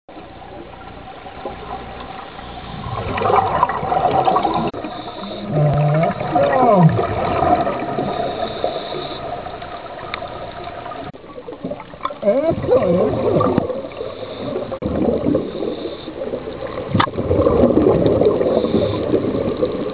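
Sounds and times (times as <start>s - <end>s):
bubbles gurgling: 0.2s - 19.9s
scuba diver breathing underwater: 2.4s - 9.7s, 12.9s - 19.9s
squeaky whine-like glides: 4.6s - 6.8s.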